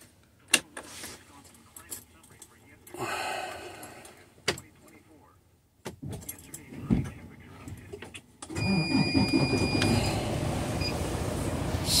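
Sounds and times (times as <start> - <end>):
truck engine running: 8.9 - 12.0.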